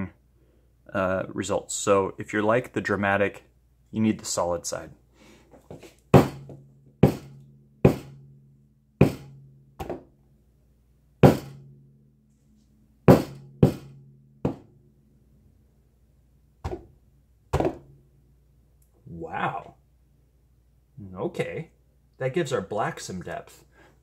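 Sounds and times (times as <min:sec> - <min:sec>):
faint low hum: 0:00.0 - 0:24.0
hammer smacking wet paint: 0:06.1 - 0:08.2, 0:09.0 - 0:10.1, 0:11.2 - 0:11.6, 0:13.1 - 0:14.7, 0:16.6 - 0:16.9, 0:17.5 - 0:17.9.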